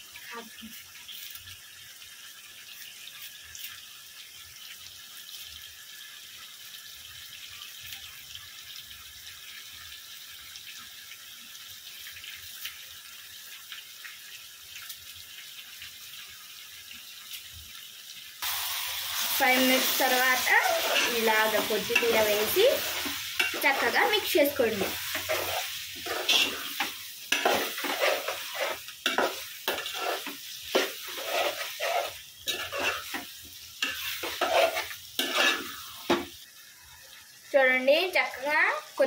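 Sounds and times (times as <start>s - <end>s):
curry sizzling in a pot: 0.0s - 39.0s
spoon stirring in a pot: 20.2s - 36.3s.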